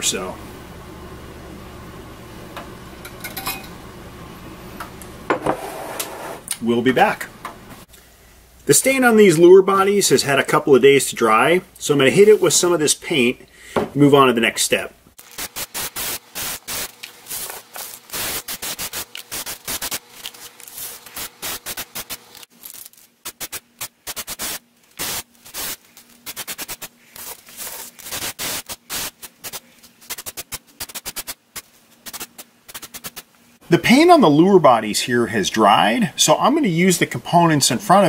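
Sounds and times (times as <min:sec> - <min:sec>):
spray can hissing bursts: 0:15.2 - 0:20.0, 0:20.7 - 0:22.5, 0:23.2 - 0:33.3.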